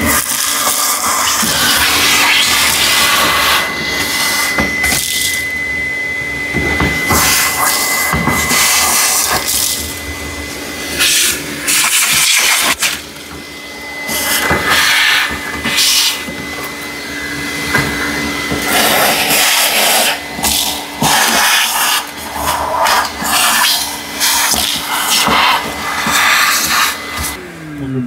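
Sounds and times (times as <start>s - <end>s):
vacuum nozzle sucking air: 0.0s - 27.4s
shop vacuum motor whine: 0.0s - 28.0s.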